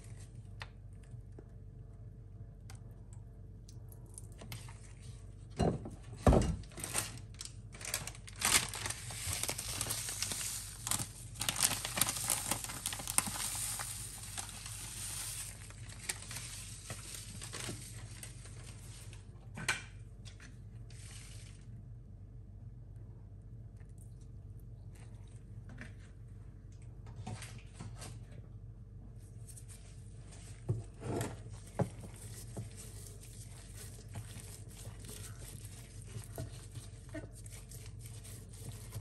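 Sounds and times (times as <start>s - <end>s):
crinkling and rustling: 5.9s - 19.3s, 29.4s - 39.0s.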